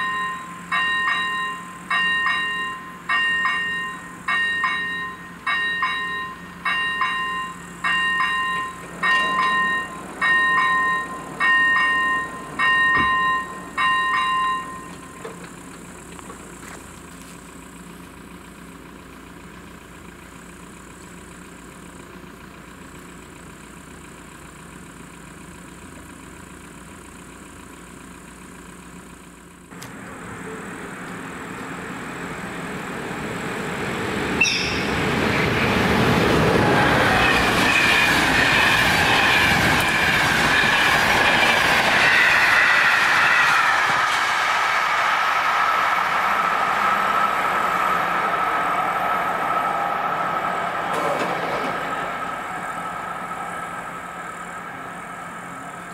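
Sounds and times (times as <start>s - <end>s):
train wheels clattering on rails: 0.0s - 16.6s, 33.1s - 53.3s
high squeal: 34.3s - 55.9s.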